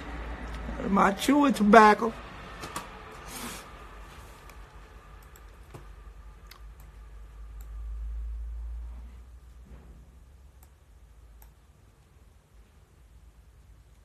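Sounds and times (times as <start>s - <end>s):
low rumble: 0.0s - 11.2s.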